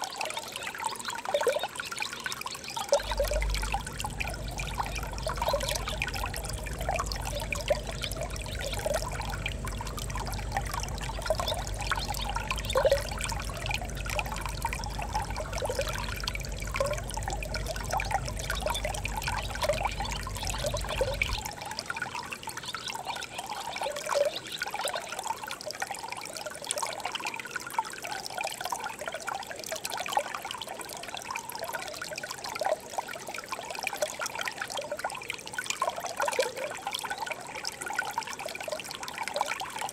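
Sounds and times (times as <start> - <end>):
stream babbling over stones: 0.0 - 39.9
low rumble: 3.0 - 21.5.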